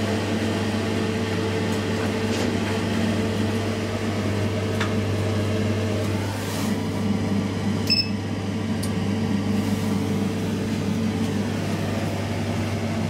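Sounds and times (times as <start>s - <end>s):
elevator hum: 0.0s - 13.0s
short high beep: 7.9s - 8.2s.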